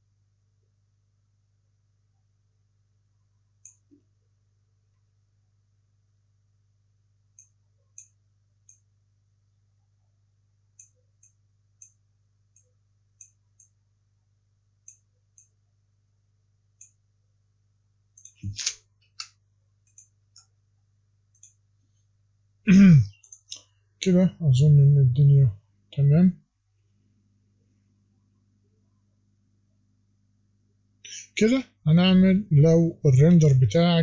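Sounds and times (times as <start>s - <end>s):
faint low hum: 0.0s - 34.0s
computer mouse clicks: 3.6s - 4.0s, 7.4s - 8.9s, 10.8s - 13.8s, 14.8s - 15.6s, 18.2s - 20.5s, 21.3s - 21.6s, 23.2s - 23.7s.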